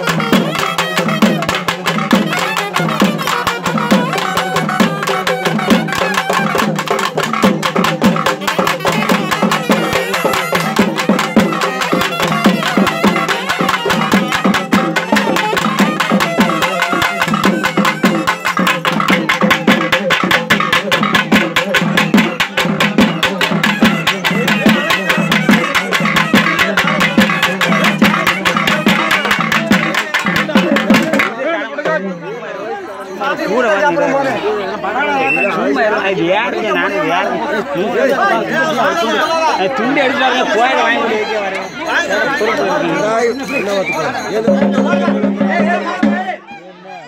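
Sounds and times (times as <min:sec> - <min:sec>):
group folk drumming: 0:00.0 - 0:32.0, 0:44.4 - 0:46.4.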